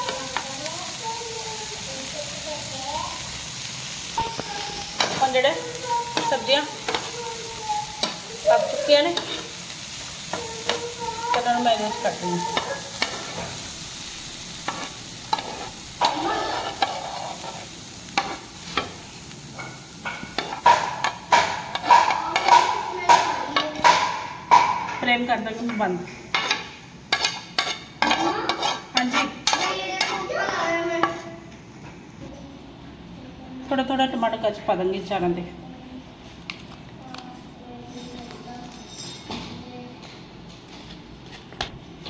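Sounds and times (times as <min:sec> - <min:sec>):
vegetables sizzling on a pan: 0:00.0 - 0:32.3
steel spoon scraping a pan: 0:04.2 - 0:08.2, 0:08.9 - 0:19.0, 0:19.6 - 0:24.6, 0:25.6 - 0:31.4.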